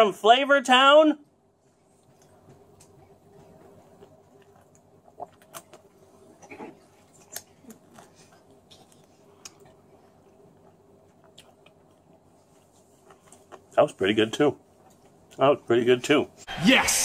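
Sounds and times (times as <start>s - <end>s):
man chewing food: 1.6s - 13.8s, 14.6s - 15.4s
wet mouth clicks and smacks: 4.4s - 5.9s.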